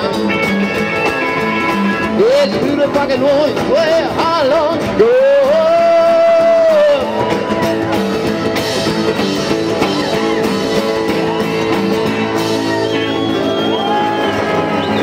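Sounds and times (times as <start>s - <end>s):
singer shouting: 0.0s - 8.2s
rock band on acoustic guitars: 0.0s - 15.0s
crowd shouting: 5.7s - 15.0s.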